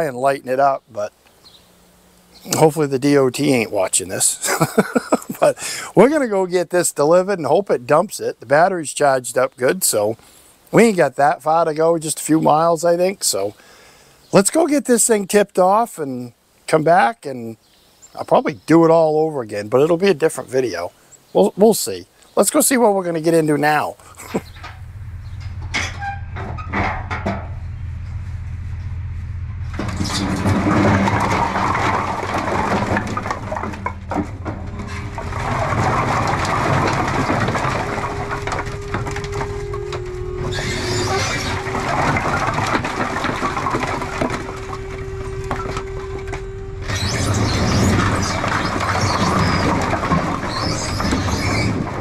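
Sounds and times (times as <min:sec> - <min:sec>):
firewood sliding and clattering: 0:02.4 - 0:06.2, 0:23.3 - 0:24.7, 0:29.7 - 0:52.0
hydraulic pump hum: 0:24.1 - 0:51.0.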